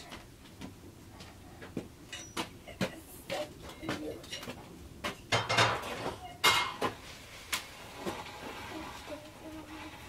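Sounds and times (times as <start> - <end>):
clattering scrapes: 5.4 - 10.0.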